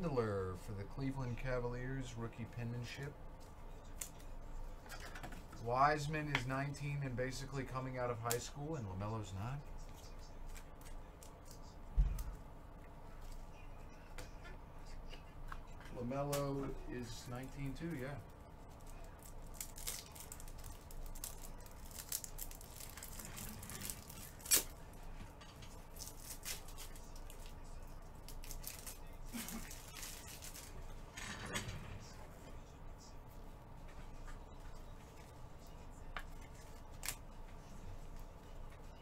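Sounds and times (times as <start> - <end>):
rustling: 17.0 - 32.4.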